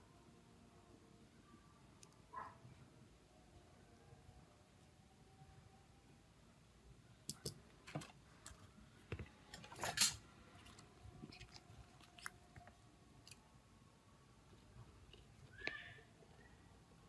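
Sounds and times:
faint clicks and taps: 7.3s - 9.8s.

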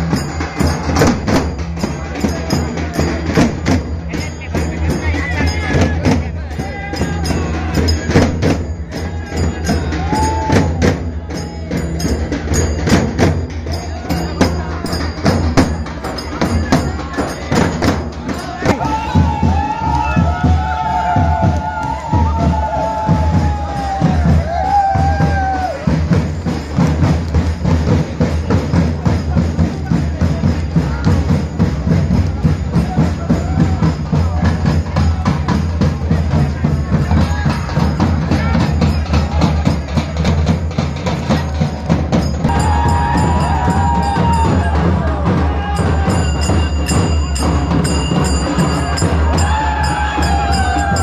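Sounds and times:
dhol drums and hand percussion: 0.0s - 51.0s.

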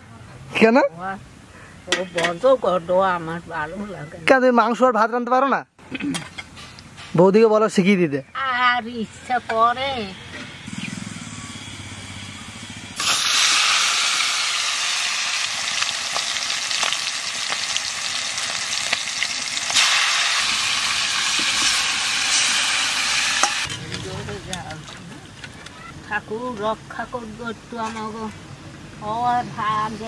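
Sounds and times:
chicken sizzling in hot oil: 12.6s - 23.7s.

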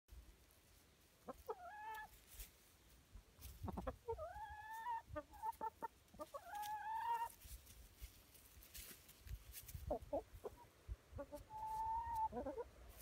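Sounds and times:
hens clucking: 1.0s - 7.7s, 9.6s - 13.0s
hens trilling: 1.2s - 2.4s, 3.4s - 7.6s, 9.6s - 13.0s.

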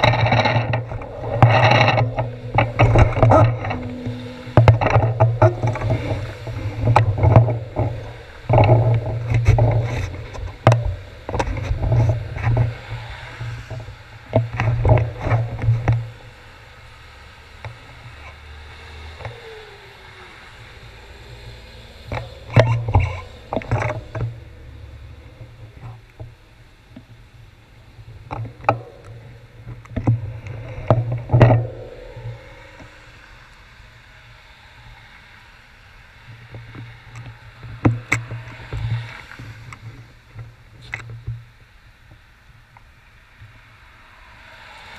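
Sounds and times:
vehicles passing: 0.0s - 44.9s.

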